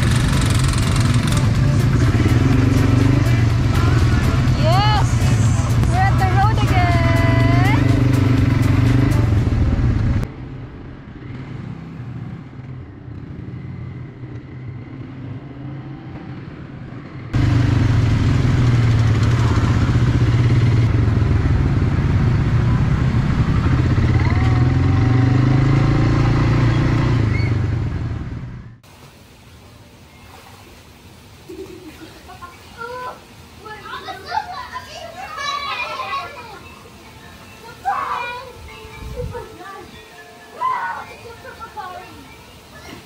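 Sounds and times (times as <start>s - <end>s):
motor vehicle engine and road noise: 0.0s - 29.5s.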